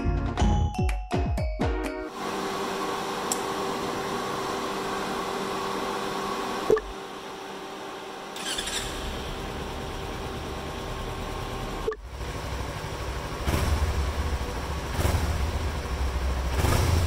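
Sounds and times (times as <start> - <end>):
motorcycle starter cranking: 8.4 - 9.2
motorcycle engine idling: 8.4 - 17.0.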